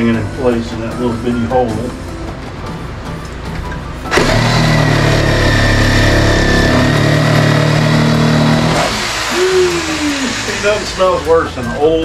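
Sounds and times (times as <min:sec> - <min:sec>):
power tool cutting wood: 0:04.1 - 0:11.7.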